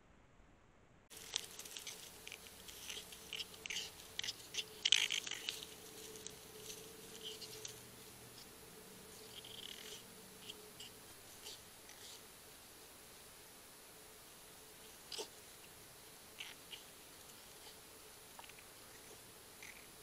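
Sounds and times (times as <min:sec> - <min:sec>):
faint steady hum: 0:00.0 - 0:20.0
dry leaves rustling and crunching: 0:01.1 - 0:08.6.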